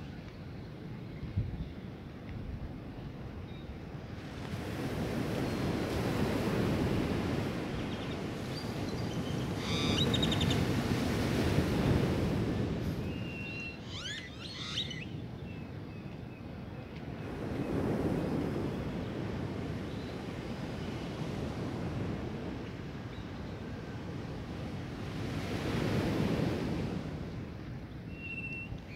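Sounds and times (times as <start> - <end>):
waves washing up beach: 4.1 - 14.3
birds chirping: 7.7 - 10.8, 13.0 - 16.1
bird sliding whistles: 9.6 - 10.6, 13.1 - 15.1.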